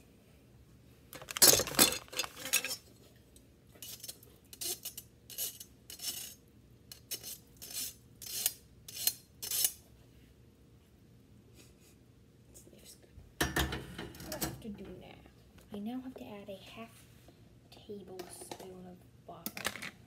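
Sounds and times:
strainer clattering against saucepan: 0:01.2 - 0:02.8.

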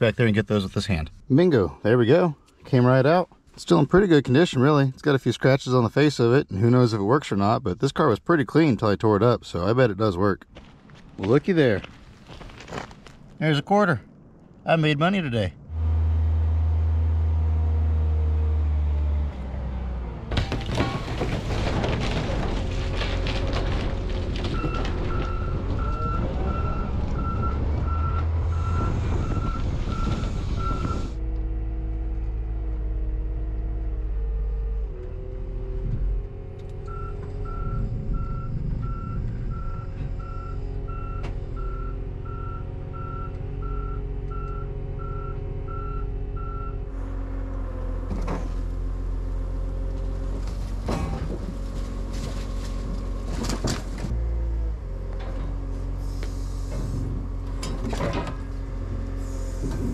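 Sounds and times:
heavy vehicle engine running: 0:15.6 - 0:59.9
backup alarm beeping: 0:36.9 - 0:46.8.

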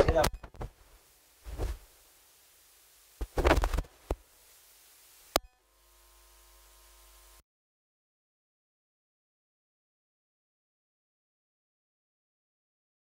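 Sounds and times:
faint steady hum: 0:00.0 - 0:07.4.

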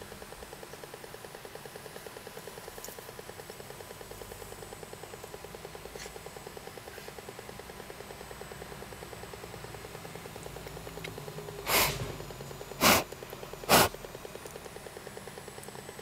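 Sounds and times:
short puffs of breath: 0:11.6 - 0:12.1, 0:12.8 - 0:13.1, 0:13.7 - 0:13.9.

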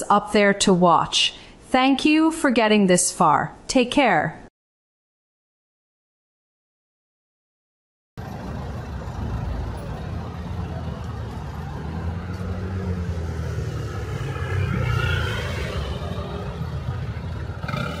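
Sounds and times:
traffic engines humming: 0:08.2 - 0:18.0.

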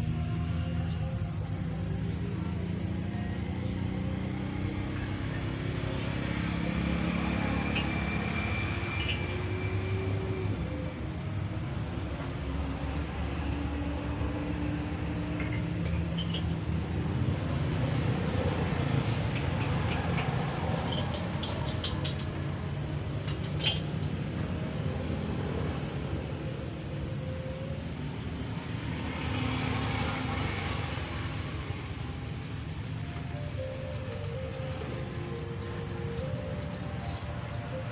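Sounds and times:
low motor rumble: 0:00.0 - 0:07.5.

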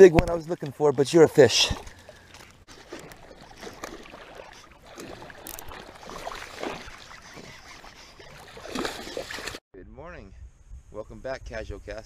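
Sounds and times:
fish splashing at water surface: 0:01.6 - 0:09.6.

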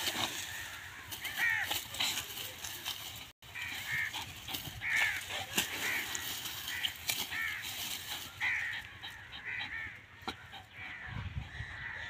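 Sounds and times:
dry palm fronds snapping: 0:04.8 - 0:08.1.

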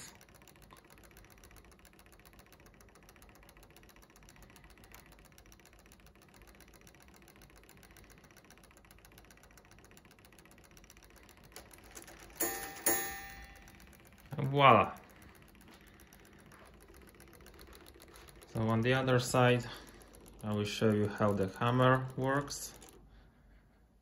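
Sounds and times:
rapid clock ticking: 0:00.0 - 0:23.6
clock hammer strike ringing: 0:12.2 - 0:23.0.

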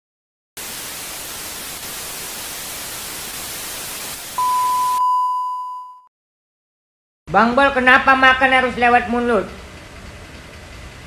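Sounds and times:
television static hiss: 0:00.6 - 0:04.5
high pure beep: 0:04.4 - 0:06.1.

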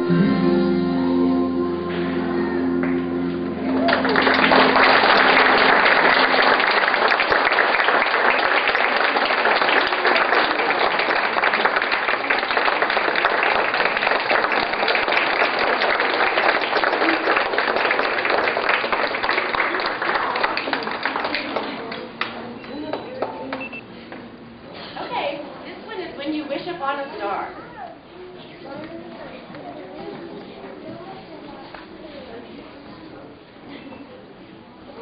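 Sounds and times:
audience applauding: 0:02.8 - 0:23.7.

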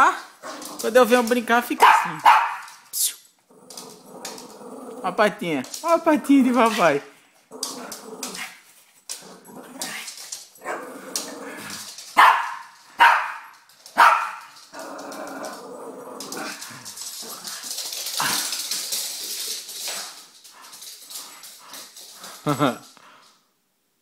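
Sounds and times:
dog barking: 0:01.8 - 0:02.7, 0:12.2 - 0:14.4.

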